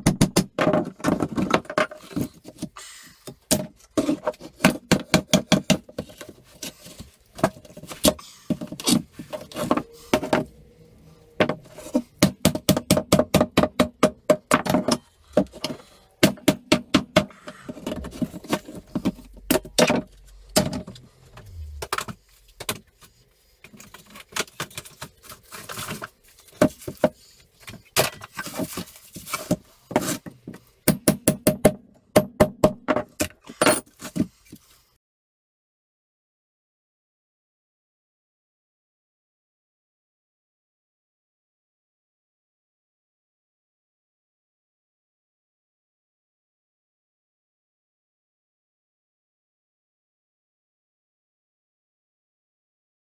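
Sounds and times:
hammer striking wood: 0:30.9 - 0:33.0.

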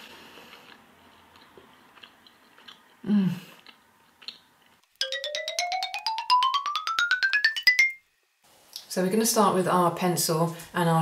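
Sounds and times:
woman humming: 0:03.0 - 0:03.5.

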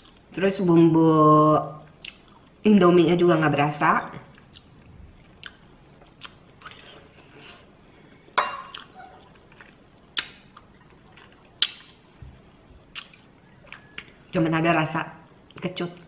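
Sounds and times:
quiet chewing: 0:04.1 - 0:07.7, 0:08.7 - 0:12.0, 0:12.9 - 0:14.2.

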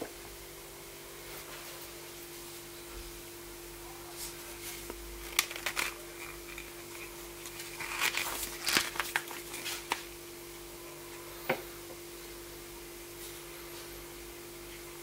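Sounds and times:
steady hum: 0:00.0 - 0:15.0
plastic containers clicking: 0:05.3 - 0:10.0.

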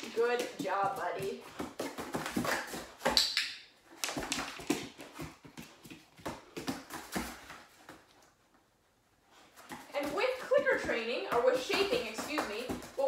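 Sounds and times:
dog paws scuffing in cardboard box: 0:09.3 - 0:13.0.

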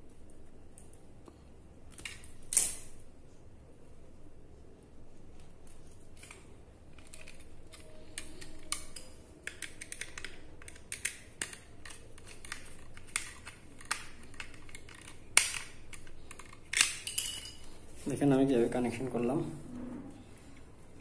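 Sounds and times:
screwdriver clicking and scraping: 0:06.2 - 0:17.1.

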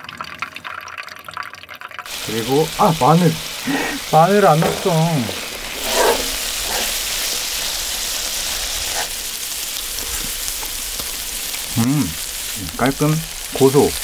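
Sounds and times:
meat sizzling on a griddle: 0:02.1 - 0:14.0
person humming: 0:11.7 - 0:12.8.

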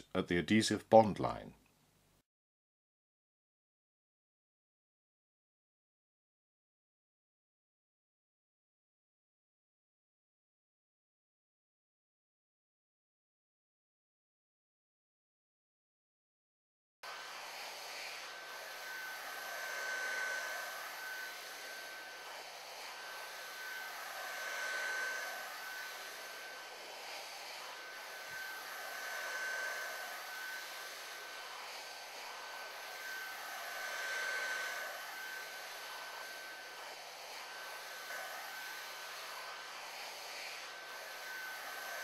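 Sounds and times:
heat gun whine and air hiss: 0:17.1 - 0:42.0.

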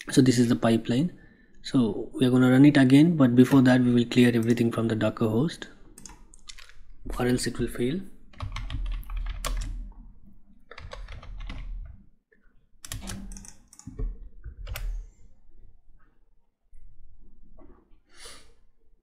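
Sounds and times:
keyboard typing: 0:06.0 - 0:06.8, 0:08.3 - 0:09.9, 0:10.7 - 0:12.0, 0:12.8 - 0:15.0.

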